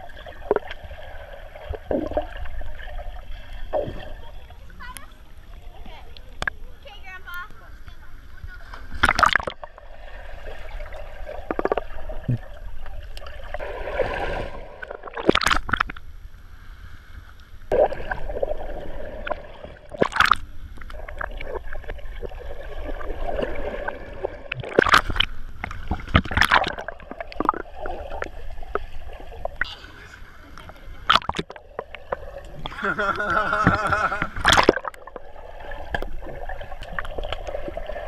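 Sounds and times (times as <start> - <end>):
splashing rushes of bubbles: 0.0 - 4.2, 8.9 - 12.6, 13.2 - 15.9, 17.7 - 29.7, 31.0 - 32.9, 33.6 - 38.0
underwater gurgling and bubbling: 0.0 - 6.6, 8.9 - 16.1, 17.7 - 30.0, 30.6 - 38.0.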